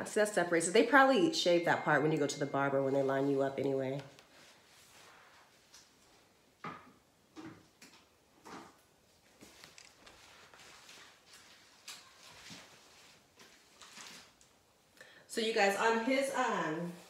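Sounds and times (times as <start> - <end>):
faint handling sounds: 8.4 - 14.9.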